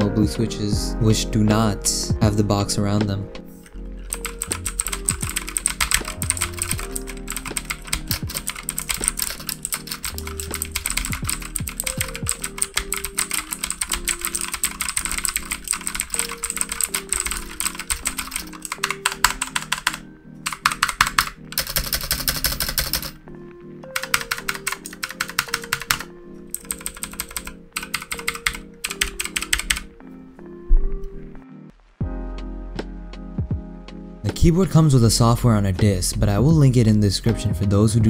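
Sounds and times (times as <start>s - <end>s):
lo-fi music track: 0.0s - 38.0s
mechanical keyboard typing clicks: 4.1s - 23.2s, 24.0s - 29.8s.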